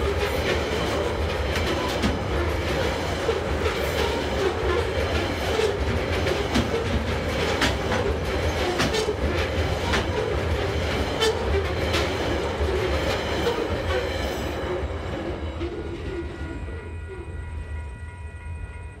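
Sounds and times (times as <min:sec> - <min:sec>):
wheels clanking over rail joints: 0:00.0 - 0:16.3
train wagons rumbling: 0:00.0 - 0:18.9.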